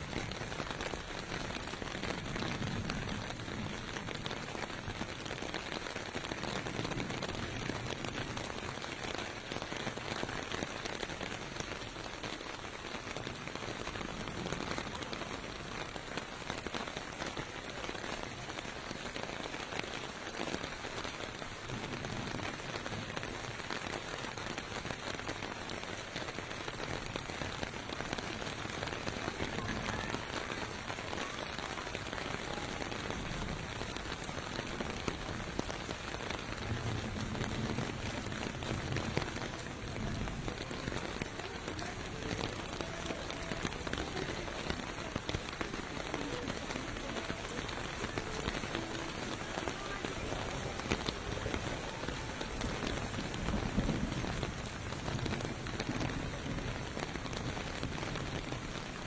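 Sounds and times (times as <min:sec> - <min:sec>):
steady rain on pavement: 0:00.0 - 0:59.0.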